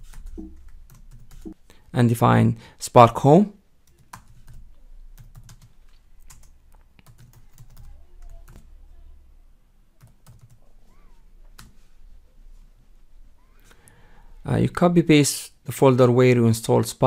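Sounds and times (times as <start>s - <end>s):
slow typing on keyboard: 0.0s - 1.6s, 3.8s - 8.7s, 10.0s - 10.6s.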